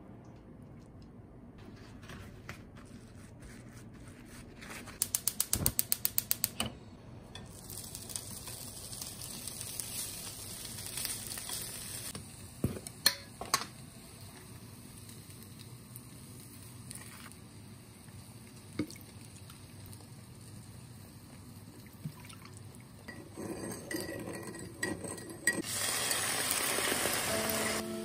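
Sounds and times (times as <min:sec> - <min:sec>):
tofu sizzling in a frying pan: 0:07.5 - 0:12.4, 0:25.6 - 0:27.8.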